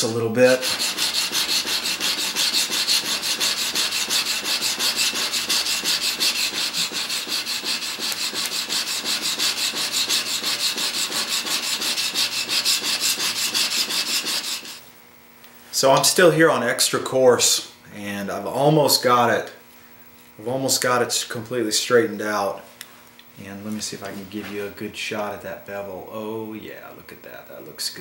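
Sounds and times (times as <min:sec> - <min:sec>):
chisel rasping on sharpening plate: 0:00.6 - 0:14.8.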